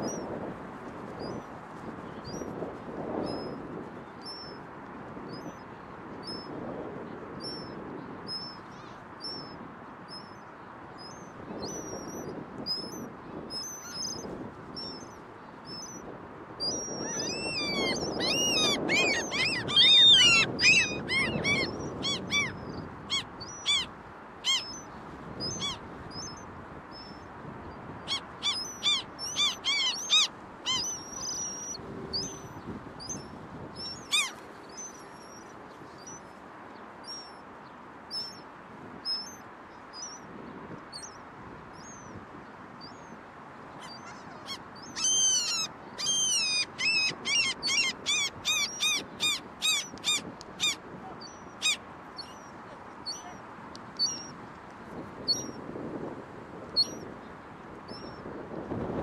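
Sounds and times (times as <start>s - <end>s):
gulls calling: 16.6s - 27.2s, 28.0s - 36.2s, 43.8s - 53.4s, 54.0s - 54.4s.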